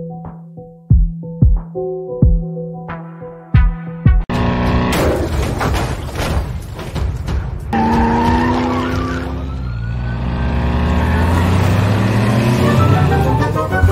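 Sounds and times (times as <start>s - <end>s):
car engine humming and whining: 4.3s - 5.2s, 7.8s - 13.9s.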